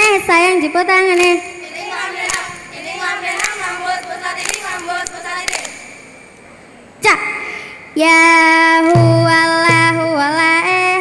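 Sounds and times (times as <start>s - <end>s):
girls chanting in unison: 1.0s - 6.0s.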